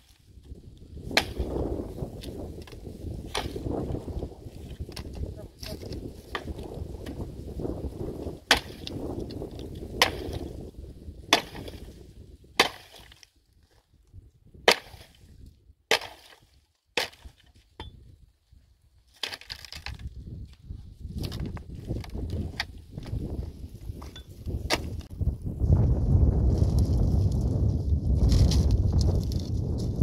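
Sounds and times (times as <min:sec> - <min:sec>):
axe chopping firewood: 0:00.4 - 0:07.2, 0:08.3 - 0:10.6, 0:11.3 - 0:12.0, 0:12.6 - 0:13.3, 0:14.6 - 0:15.3, 0:15.9 - 0:18.0, 0:19.1 - 0:20.0, 0:21.2 - 0:23.2, 0:24.0 - 0:25.1.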